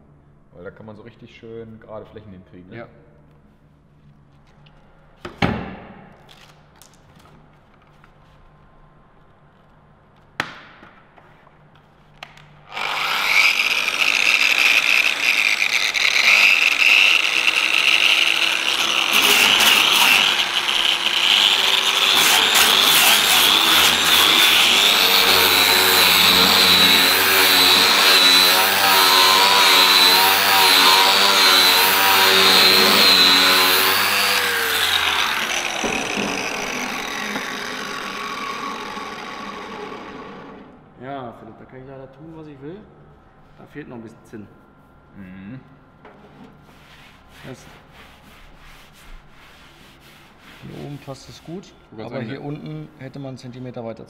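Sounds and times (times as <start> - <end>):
electric sander grinding metal: 12.7 - 40.6.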